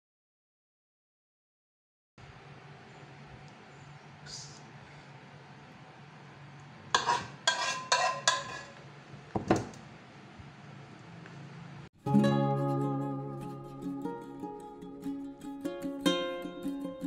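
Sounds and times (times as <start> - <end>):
metal utensil clinking on dishes: 7.0 - 8.8.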